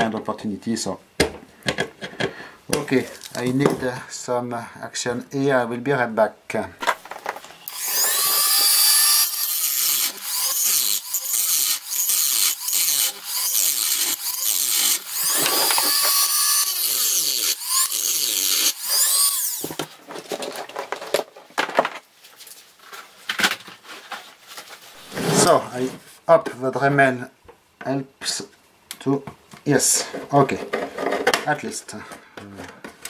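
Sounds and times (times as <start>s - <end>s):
rotary tool grinding metal: 7.5s - 19.8s.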